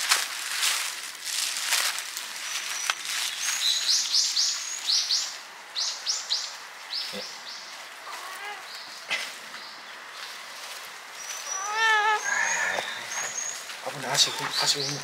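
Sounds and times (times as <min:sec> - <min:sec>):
footsteps on wet ground: 0:00.0 - 0:04.8, 0:13.2 - 0:15.0
small bird chirping: 0:02.4 - 0:10.3, 0:11.2 - 0:15.0.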